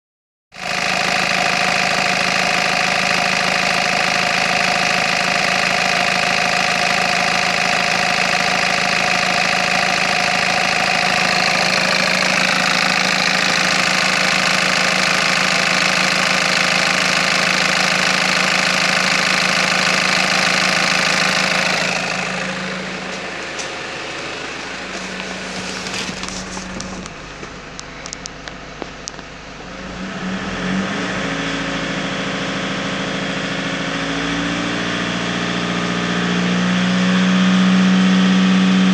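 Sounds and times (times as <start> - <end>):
diesel engine idling: 0.6 - 30.6.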